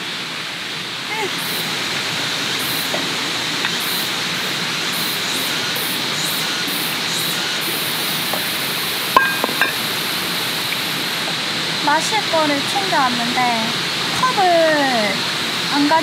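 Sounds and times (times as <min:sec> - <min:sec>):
stream running over rocks: 0:00.0 - 0:16.0
bottles clinking on stones: 0:09.2 - 0:09.9.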